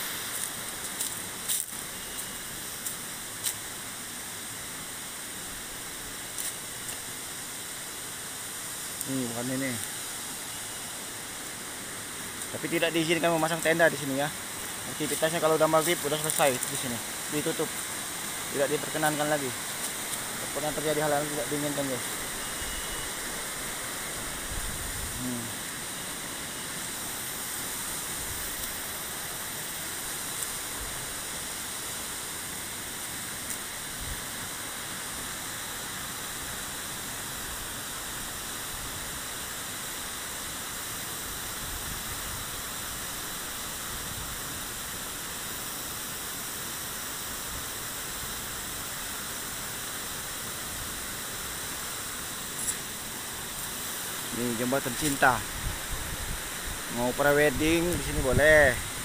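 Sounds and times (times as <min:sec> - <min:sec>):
water rushing over rocks: 0:00.0 - 0:59.0.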